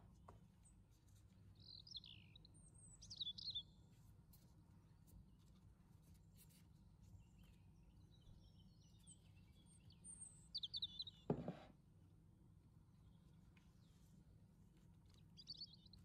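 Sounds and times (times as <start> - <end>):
soft thud: 11.3 - 11.7.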